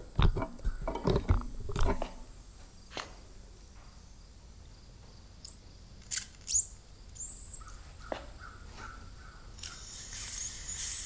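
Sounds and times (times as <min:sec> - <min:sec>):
compressed air hissing: 0:09.6 - 0:11.0.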